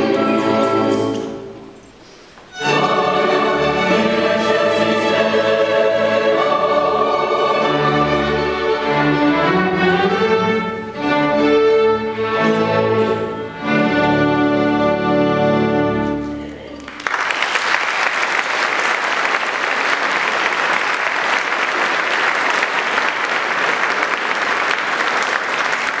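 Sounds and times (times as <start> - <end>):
string orchestra playing: 0.0 - 16.7.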